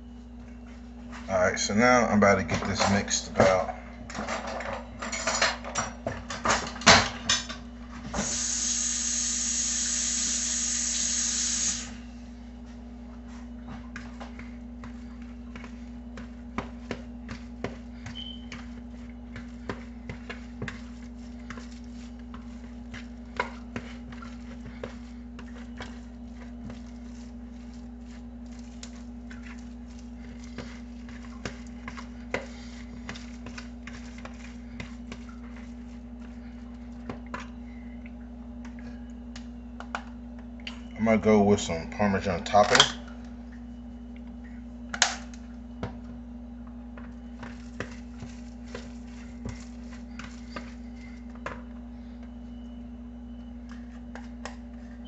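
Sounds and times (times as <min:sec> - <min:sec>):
steady hum: 0:00.0 - 0:55.0
loud hiss: 0:08.2 - 0:12.0.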